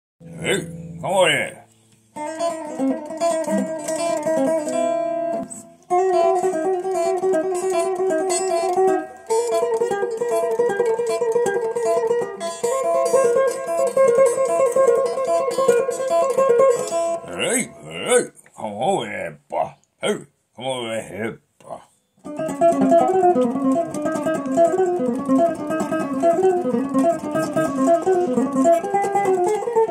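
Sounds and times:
electric guitar picked runs: 0.2s - 1.1s.

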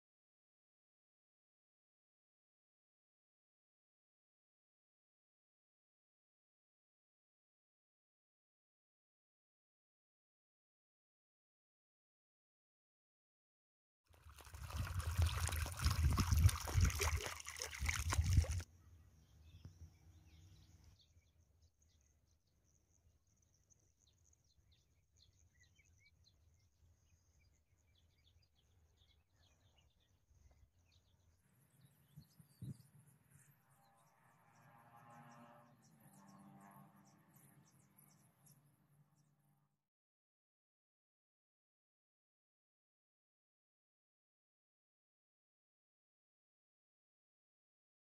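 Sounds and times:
noise buffeting microphone: 14.5s - 18.6s.

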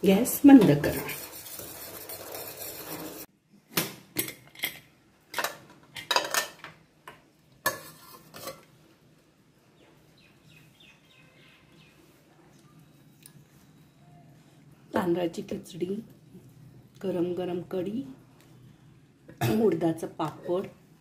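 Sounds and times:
ladle stirring in metal pot: 0.6s - 3.3s, 7.7s - 8.7s
metal cookware clinking: 4.2s - 6.7s.

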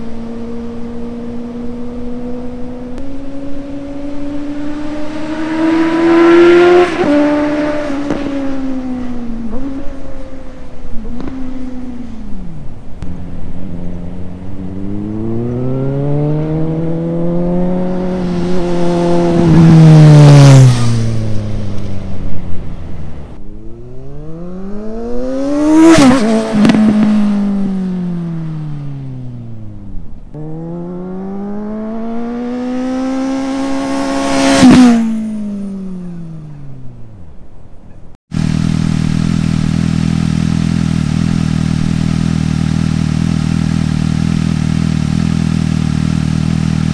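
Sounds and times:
motorcycle passing under throttle: 0.0s - 37.2s, 38.3s - 46.9s
motorcycle idling: 38.3s - 46.9s.

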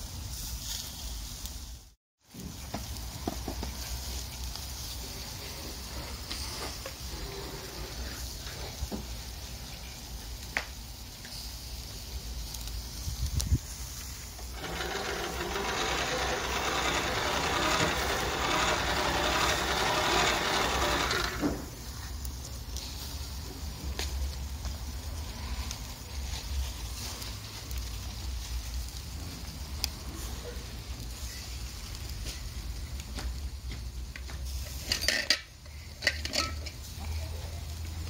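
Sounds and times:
chicken sizzling on charcoal grill: 0.0s - 38.0s
hand-cranked blower whirring: 14.4s - 21.8s.

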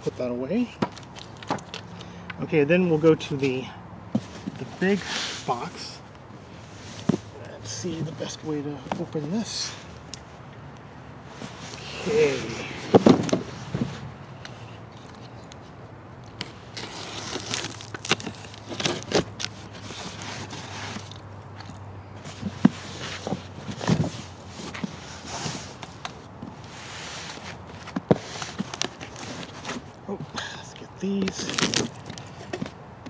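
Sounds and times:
cardboard box scraping and knocking: 11.4s - 14.1s, 22.3s - 25.8s.

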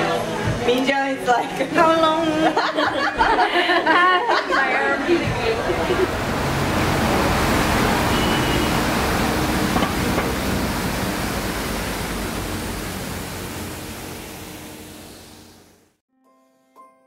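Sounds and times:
street noise rush: 4.0s - 15.9s.

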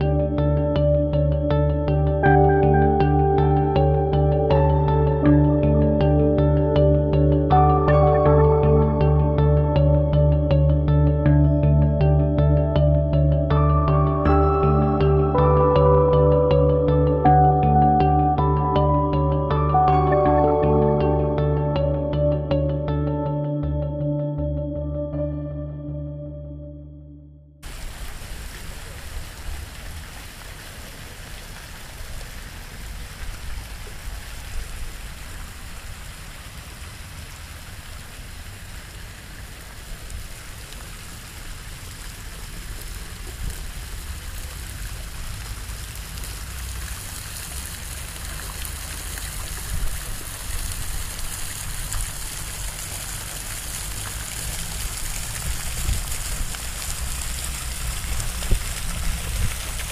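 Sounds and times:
fountain jets splashing into pool: 27.6s - 59.9s.

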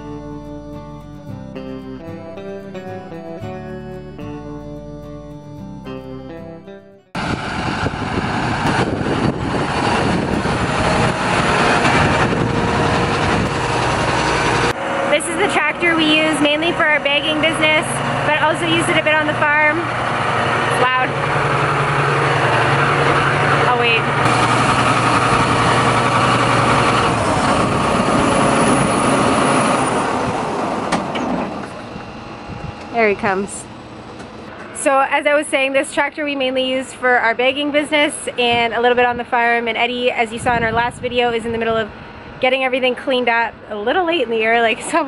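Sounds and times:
acoustic guitar music: 0.0s - 7.2s
tractor diesel engine running: 0.0s - 45.0s.

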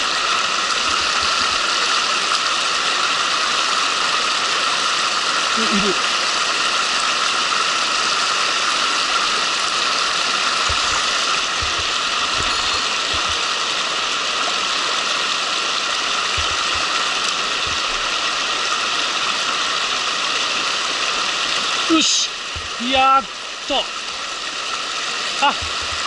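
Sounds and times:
stream water rushing over rocks: 0.0s - 26.0s
dull low bumps: 10.6s - 13.4s, 16.3s - 18.2s, 25.6s - 26.0s.

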